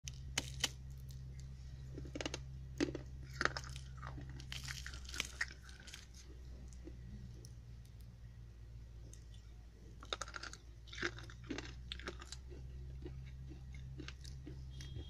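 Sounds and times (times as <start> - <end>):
brittle disc cracking: 0.0 - 8.1
low steady hum: 0.0 - 15.0.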